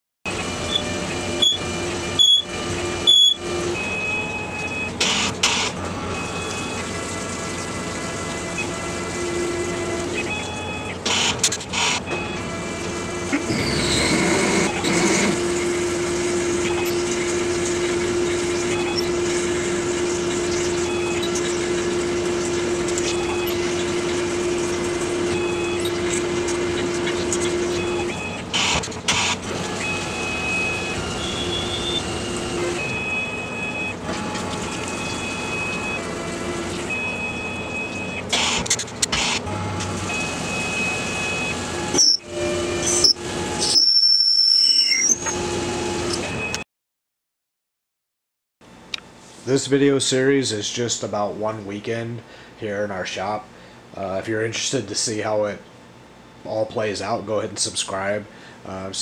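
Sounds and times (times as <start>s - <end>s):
steady drilling tone: 10.7s - 33.6s.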